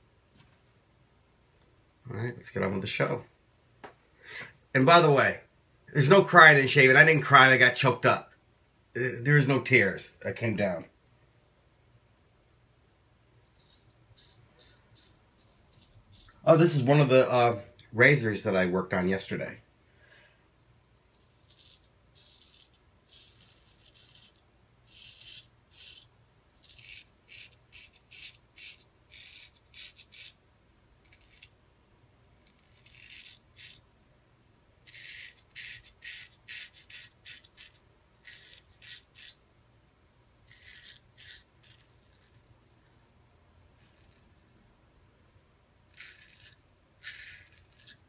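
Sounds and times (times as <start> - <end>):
razor scraping stubble: 13.4 - 17.1, 21.1 - 30.4, 31.0 - 31.6, 32.4 - 33.8, 34.8 - 39.4, 40.4 - 43.0, 43.8 - 44.6, 45.8 - 48.0.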